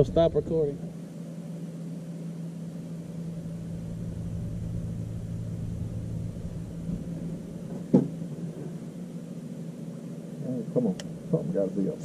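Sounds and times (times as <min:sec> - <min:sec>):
electric motor humming: 0:01.9 - 0:11.4
loud thump: 0:06.8 - 0:08.2.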